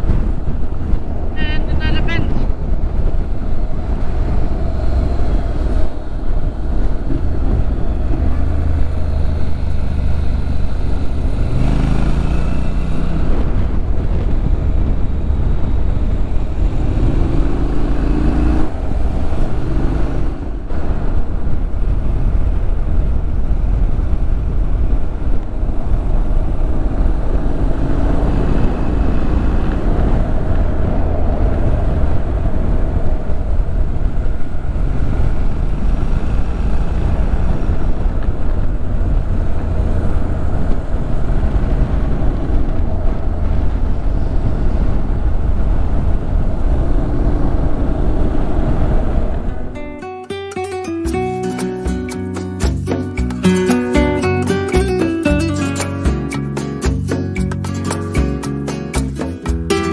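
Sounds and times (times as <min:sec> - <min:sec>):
wind rumble on microphone: 0:00.0 - 0:59.9
motorcycle engine accelerating: 0:02.6 - 0:50.0.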